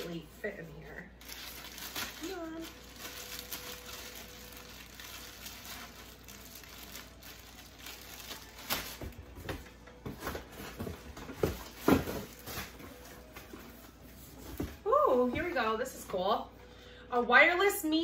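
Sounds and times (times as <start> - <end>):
plastic packaging crinkling: 1.2 - 13.3.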